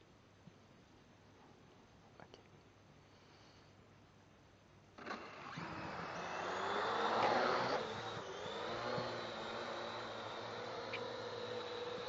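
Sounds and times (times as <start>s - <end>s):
drone propellers whining: 5.1s - 12.0s.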